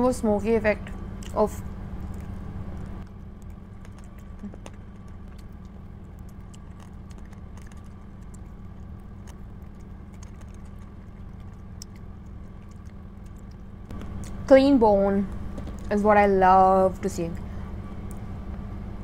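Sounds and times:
steady low hum: 0.0 - 19.0
chewing and wet mouth clicks: 1.2 - 14.4.

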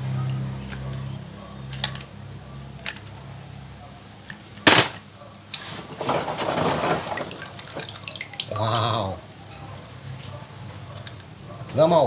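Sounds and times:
toy cars clicking and knocking: 1.7 - 3.2
loud sharp knock: 4.7 - 5.0
water sloshing: 5.9 - 8.7.

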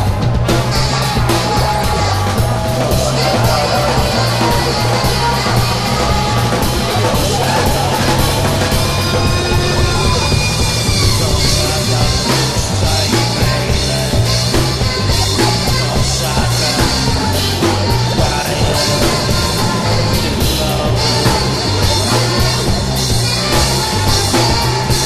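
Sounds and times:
rock band playing: 0.0 - 25.0.

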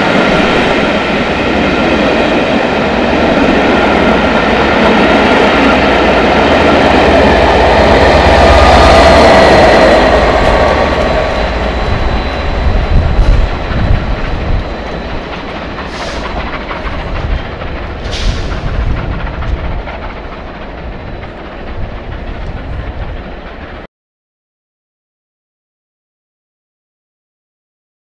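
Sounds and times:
train wheels clacking over rails: 0.0 - 23.9
brief hisses: 15.9 - 16.4, 18.0 - 18.8.

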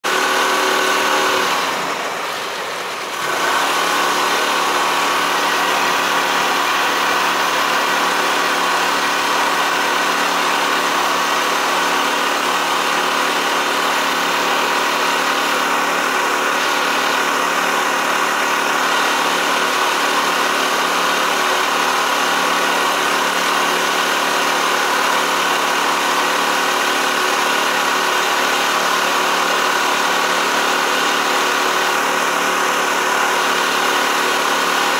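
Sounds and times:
motorboat engine running: 0.0 - 34.9.

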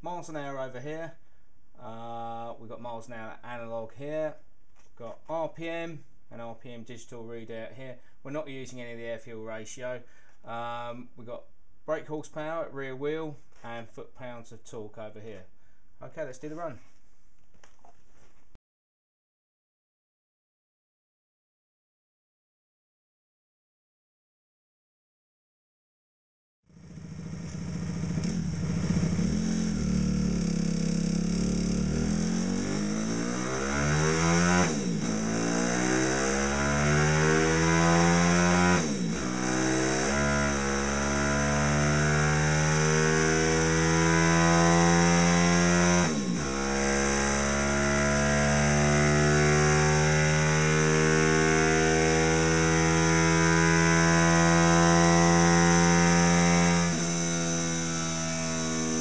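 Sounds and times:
motorbike engine accelerating: 26.7 - 59.0.

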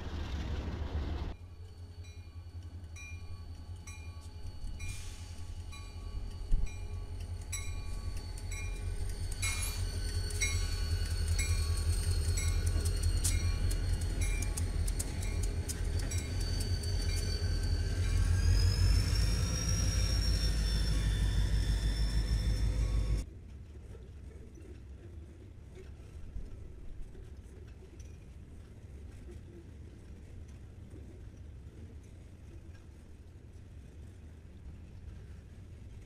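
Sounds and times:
locomotive rumble: 0.0 - 23.2
train wheels clicking: 0.4 - 23.2
crossing warning bell ringing: 1.4 - 23.2
wheel squeal: 3.2 - 23.2.

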